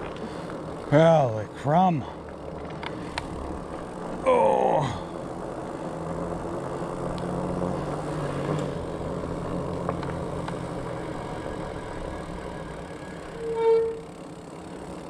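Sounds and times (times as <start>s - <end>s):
bike tires humming on asphalt: 0.0s - 15.0s
faint ticks: 2.2s - 3.4s, 7.0s - 7.4s, 9.7s - 10.7s.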